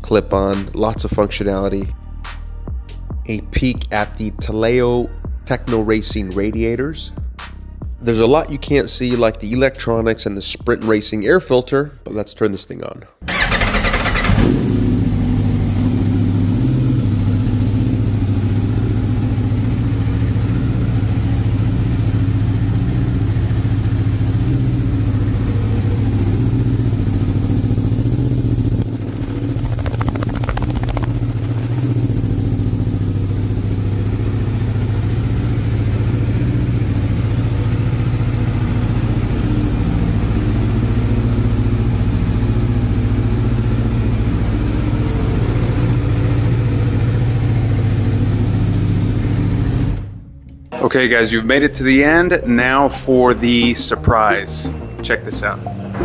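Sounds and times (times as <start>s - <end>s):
motorcycle engine idling: 13.3s - 50.2s.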